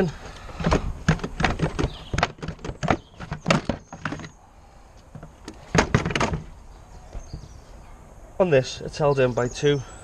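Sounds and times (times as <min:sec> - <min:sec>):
hard plastic clicks and knocks: 0:00.2 - 0:04.3, 0:05.1 - 0:06.5.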